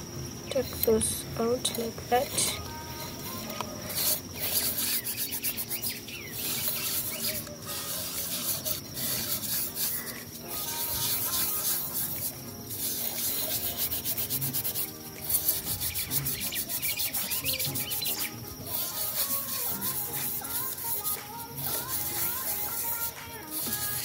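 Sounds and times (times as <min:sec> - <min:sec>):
gritty scrubbing on glass: 0:02.2 - 0:24.0.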